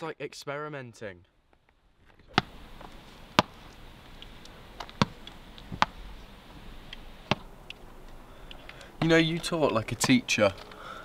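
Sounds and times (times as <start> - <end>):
ball smacks: 2.3 - 2.6, 3.4 - 3.6, 4.8 - 6.0, 7.2 - 7.5.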